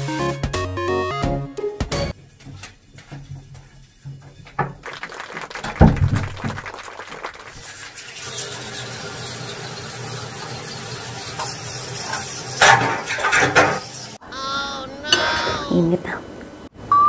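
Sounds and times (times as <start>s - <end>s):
knock: 5.8s - 6.3s
shower water running: 7.4s - 14.2s.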